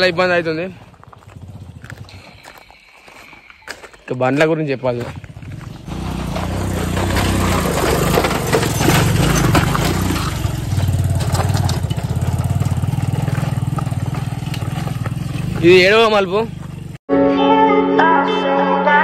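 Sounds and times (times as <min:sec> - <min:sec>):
motorcycle engine under load: 0:00.0 - 0:02.7, 0:04.8 - 0:17.0.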